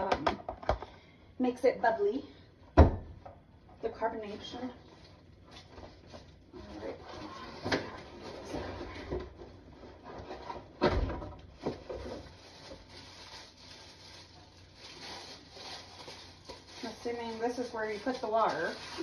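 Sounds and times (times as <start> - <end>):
packaging rustling: 11.4 - 19.0.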